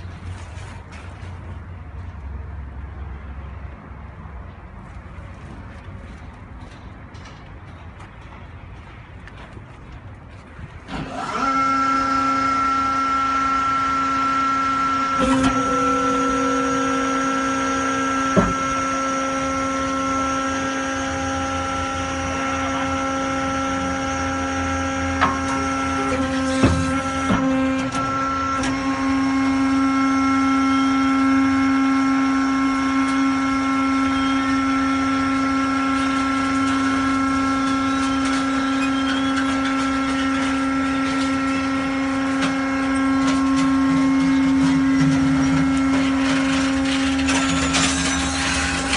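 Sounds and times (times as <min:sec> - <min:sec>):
hydraulic pump whine: 0:10.3 - 0:48.9.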